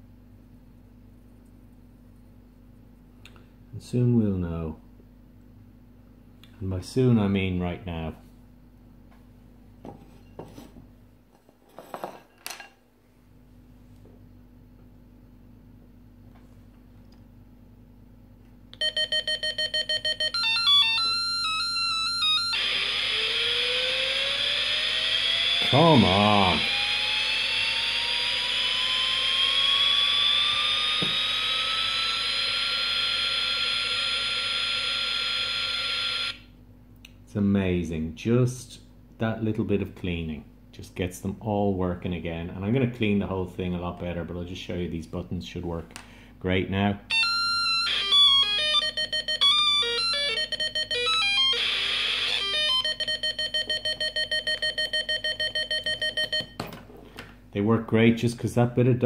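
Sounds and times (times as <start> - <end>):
toy speaker rising whine: 18.8 - 36.4, 47.1 - 56.4.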